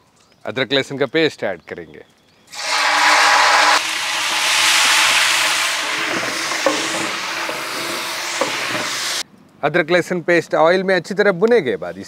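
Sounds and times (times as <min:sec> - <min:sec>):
paste sizzling in hot oil: 0:02.5 - 0:09.2.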